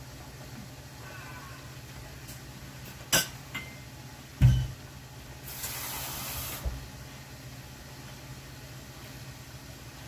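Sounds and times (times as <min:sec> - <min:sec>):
glass and dishes clinking: 0:03.1 - 0:03.8, 0:04.4 - 0:04.8
steady hiss: 0:05.4 - 0:06.8.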